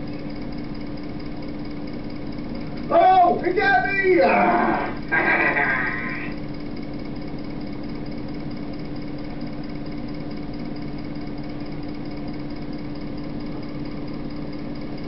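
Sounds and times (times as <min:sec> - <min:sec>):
electrical interference buzz: 0:04.4 - 0:06.4
low hum: 0:04.4 - 0:06.6.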